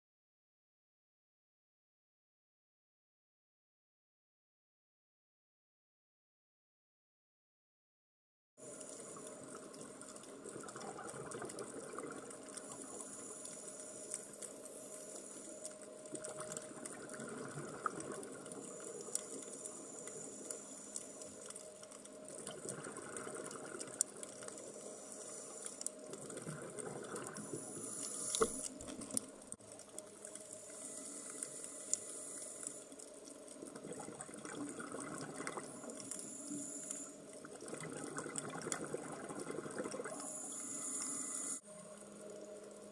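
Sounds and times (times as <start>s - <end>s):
sharp clicks and crackles: 8.7s - 41.2s
underwater bubbles gurgling: 8.7s - 41.5s.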